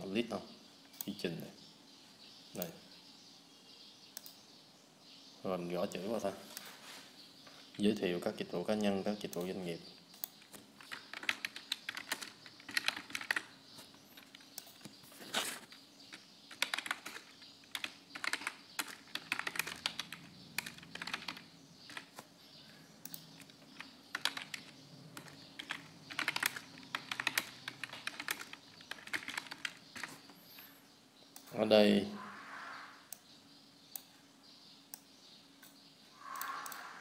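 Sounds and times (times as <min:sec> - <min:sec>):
typing on a computer keyboard: 0:10.2 - 0:13.6, 0:15.7 - 0:22.2, 0:23.1 - 0:30.2.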